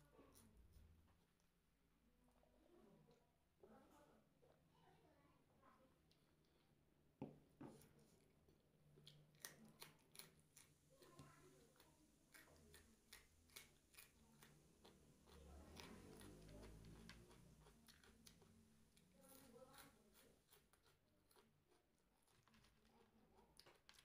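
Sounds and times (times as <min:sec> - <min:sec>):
crunchy snack being eaten: 0:09.0 - 0:11.2, 0:11.8 - 0:24.0.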